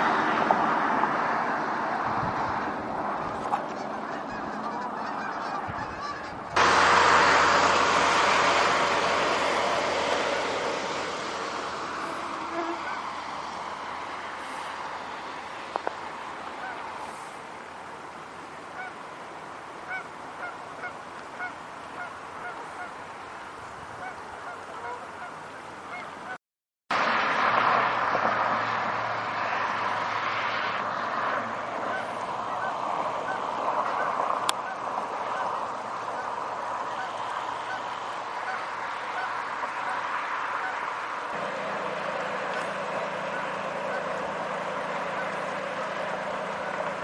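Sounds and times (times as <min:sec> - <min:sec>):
geese honking: 0:03.4 - 0:13.6, 0:16.6 - 0:17.3, 0:18.7 - 0:19.0, 0:19.8 - 0:23.0, 0:24.0 - 0:26.4, 0:31.8 - 0:47.0
steady hiss: 0:06.6 - 0:23.8.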